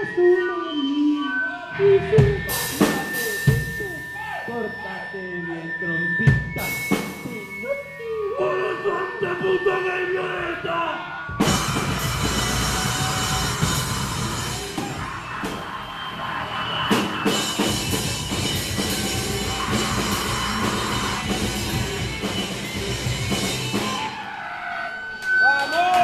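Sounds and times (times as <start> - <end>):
distorted electric guitars: 1.4 - 24.3
pounding drum kit: 2.2 - 4.0, 11.3 - 24.2.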